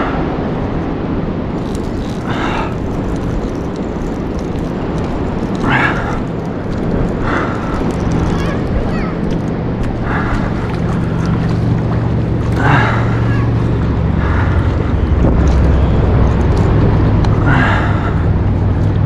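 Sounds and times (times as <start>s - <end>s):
engine humming: 0.0s - 19.0s
wind on microphone: 0.0s - 19.0s.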